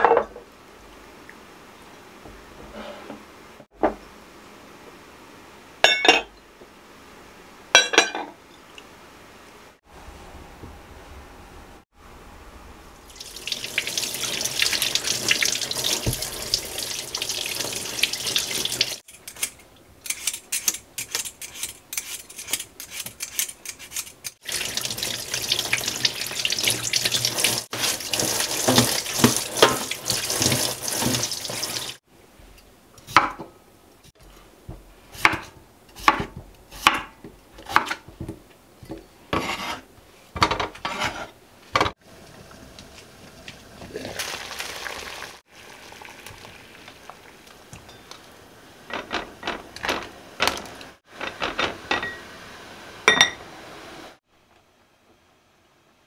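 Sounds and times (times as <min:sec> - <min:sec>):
scraping potatoes: 0:19.1 - 0:24.4, 0:39.3 - 0:39.9, 0:40.8 - 0:41.4
knife cutting on wooden board: 0:39.3 - 0:39.8.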